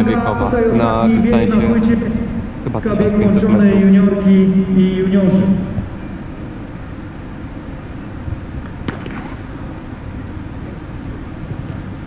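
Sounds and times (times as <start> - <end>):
low rumbling noise: 0.0 - 12.0.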